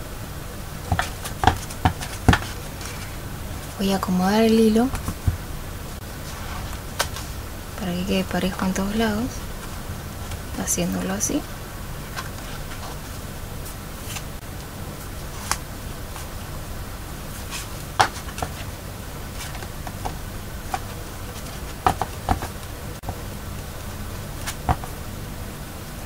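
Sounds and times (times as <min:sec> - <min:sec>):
steady low hum: 0:00.0 - 0:26.0
taps and clicks handling book: 0:00.9 - 0:03.0, 0:07.0 - 0:07.2, 0:17.5 - 0:18.6, 0:19.4 - 0:23.2.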